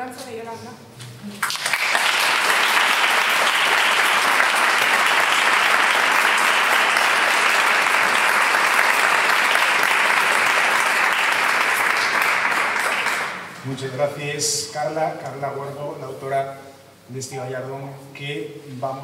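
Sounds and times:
audience applauding: 1.4 - 13.6.

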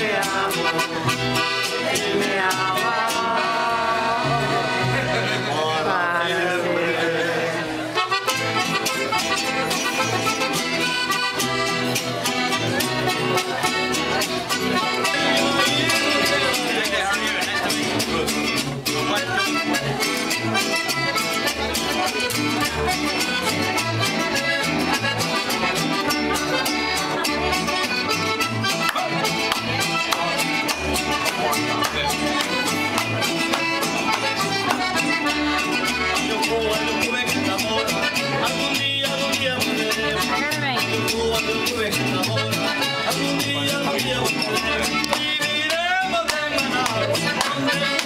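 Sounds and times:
latin band with accordion: 0.0 - 48.0.

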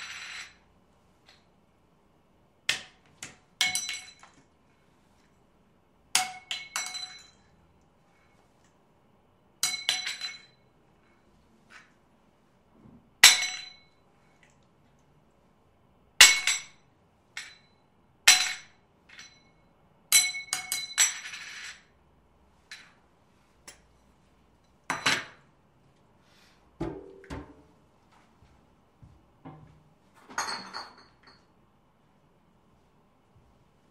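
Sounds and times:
kitchen items clinking: 30.2 - 31.6.

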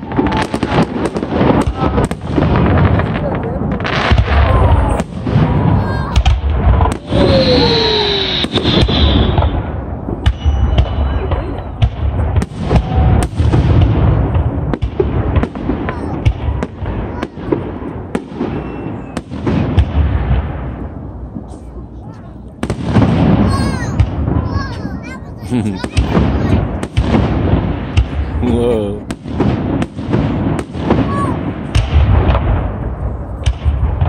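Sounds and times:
firework bangs and crackles: 0.0 - 34.0
firework high whistle: 6.9 - 13.5, 18.2 - 19.4.

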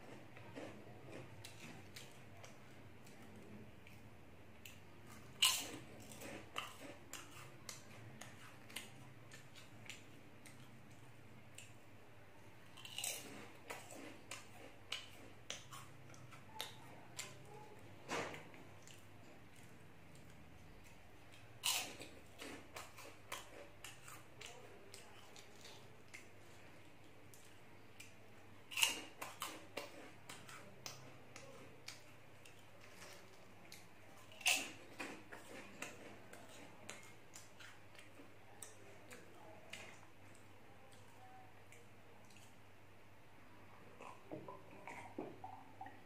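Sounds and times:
person chewing crunchy snacks: 5.0 - 10.7, 12.7 - 17.4, 20.9 - 24.6.

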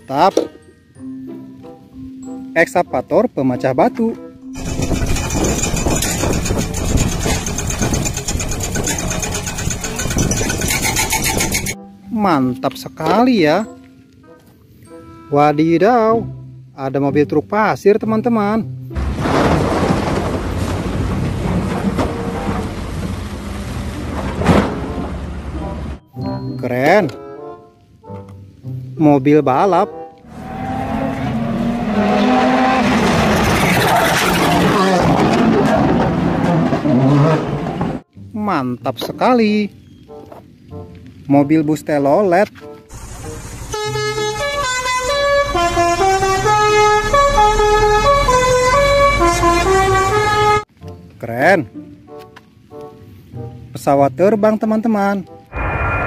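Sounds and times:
diesel engine running: 4.6 - 11.8, 42.9 - 50.1
load pouring into steel truck bed: 19.0 - 23.2
bus horn playing melody: 43.4 - 50.7.

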